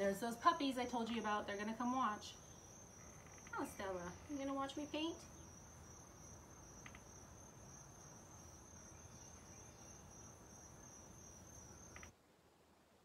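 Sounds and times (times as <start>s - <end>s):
crickets chirring: 0.0s - 12.2s.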